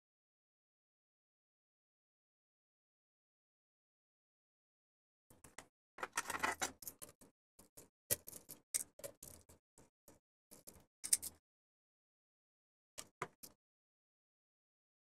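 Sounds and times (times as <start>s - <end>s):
plastic parts being handled: 6.0s - 7.2s
screwdriver clicks and scrapes: 6.0s - 7.3s.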